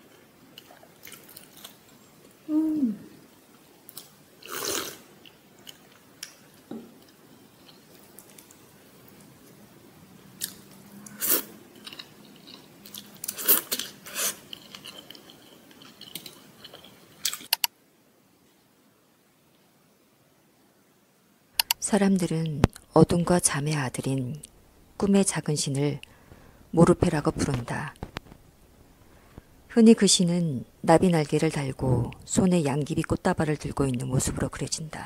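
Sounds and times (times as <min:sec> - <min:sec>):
chewing and crunching: 0:00.1 - 0:01.9, 0:03.9 - 0:09.6, 0:10.4 - 0:17.5.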